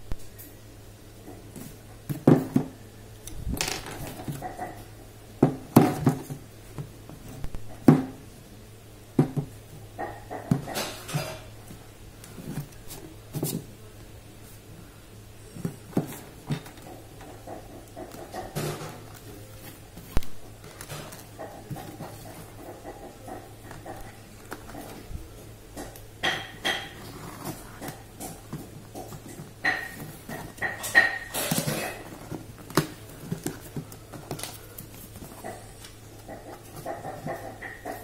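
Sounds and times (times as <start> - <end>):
box knocks and thumps on table: 2.1 - 2.8, 5.4 - 6.4
cardboard box scraping and rustling: 26.9 - 28.0.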